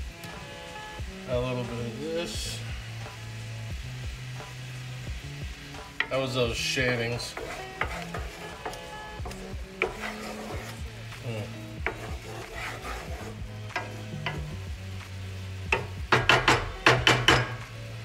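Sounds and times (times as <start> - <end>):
sauce sizzling in skillet: 0.0 - 18.0
spoon tapping pan: 5.9 - 6.4, 7.2 - 10.8, 11.8 - 14.6, 15.6 - 17.8
wooden spoon scraping pan: 5.9 - 14.5.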